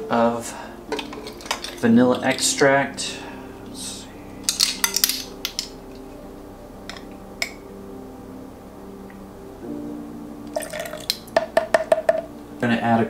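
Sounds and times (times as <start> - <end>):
kitchen utensils clinking: 0.9 - 2.6, 4.4 - 5.8.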